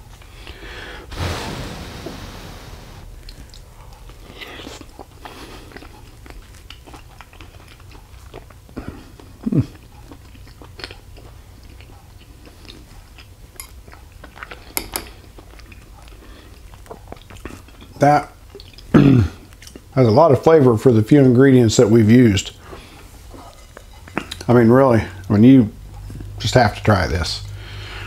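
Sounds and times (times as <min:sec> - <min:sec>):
person chewing food: 0:03.2 - 0:19.9.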